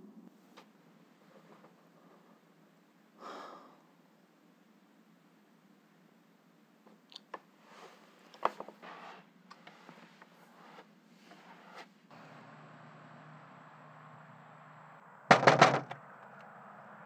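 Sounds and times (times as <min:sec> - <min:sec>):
short scraping noises: 0:07.7 - 0:12.0
scattered knocks: 0:15.3 - 0:16.0.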